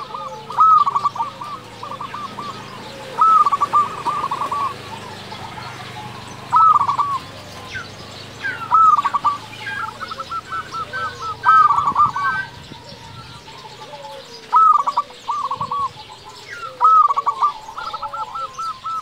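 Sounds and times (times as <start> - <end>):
dove cooing song: 0.0 - 19.0.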